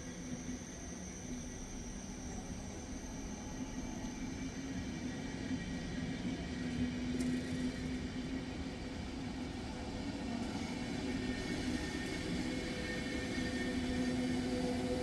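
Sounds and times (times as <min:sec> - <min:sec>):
electric train running: 0:03.8 - 0:15.0.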